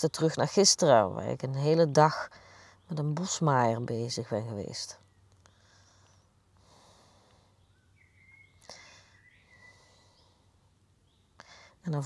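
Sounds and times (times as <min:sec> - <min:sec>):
faint breaths: 0:02.3 - 0:02.9, 0:05.4 - 0:11.8.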